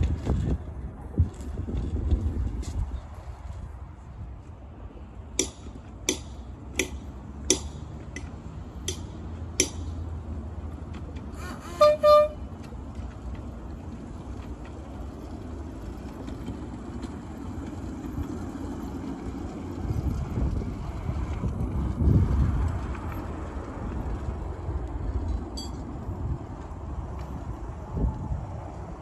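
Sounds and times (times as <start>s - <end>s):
locomotive horn toots: 11.3s - 12.7s.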